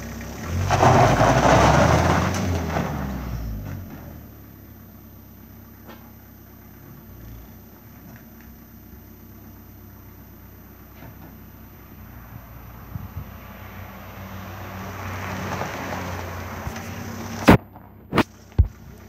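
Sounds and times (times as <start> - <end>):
car engine revving: 0.0 - 4.8, 10.3 - 18.4
tyres on gravel: 0.0 - 19.0.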